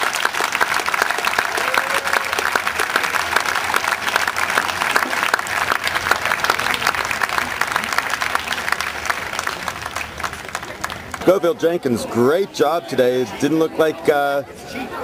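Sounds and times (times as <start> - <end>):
spectators applauding: 0.0 - 11.4.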